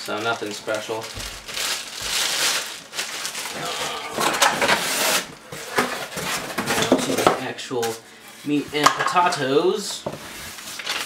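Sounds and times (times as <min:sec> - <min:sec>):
plastic bag crinkling: 0:00.0 - 0:05.4
cardboard rustling: 0:00.0 - 0:07.2.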